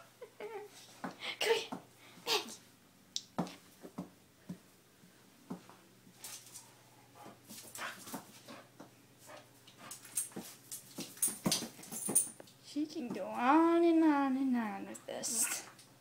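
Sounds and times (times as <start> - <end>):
dog scuffling: 7.2 - 12.4.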